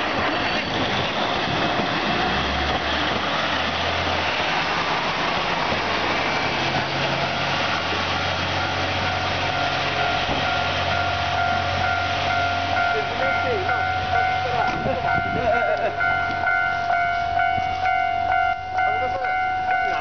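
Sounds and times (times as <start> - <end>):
diesel railcar passing: 0.0 - 20.0
steady high tone: 4.0 - 20.0.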